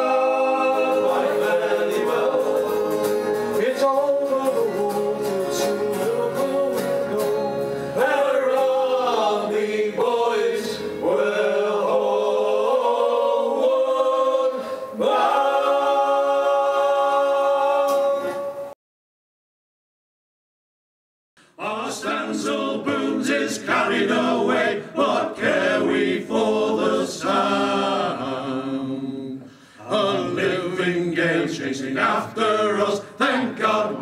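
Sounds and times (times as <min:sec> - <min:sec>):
guitar accompaniment: 0:00.0 - 0:11.1, 0:17.8 - 0:18.7
men singing in harmony: 0:00.0 - 0:18.6, 0:21.6 - 0:34.0.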